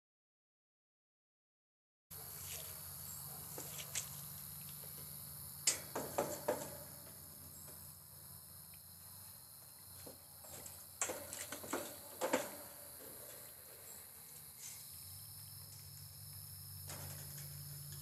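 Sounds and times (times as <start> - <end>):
insects chirring: 2.2 - 18.0
knocks and clatter on metal cabinet: 5.7 - 7.2, 10.5 - 13.4, 16.8 - 17.6.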